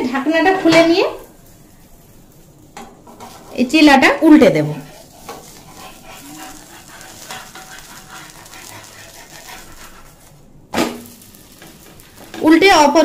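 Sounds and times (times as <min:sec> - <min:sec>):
pancake sizzling on a griddle: 0:00.2 - 0:13.0
spatula scraping: 0:01.8 - 0:10.5.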